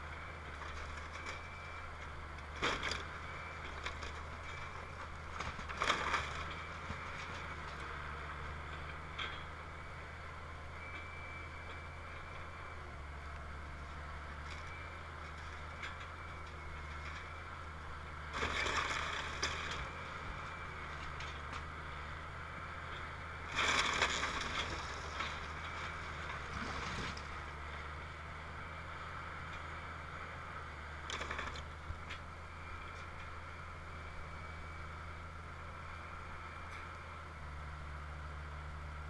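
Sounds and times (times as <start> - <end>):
excavator diesel engine running: 0.0 - 39.0
timber crunching and cracking: 2.4 - 7.9, 18.2 - 21.7, 23.4 - 27.5, 30.9 - 32.2.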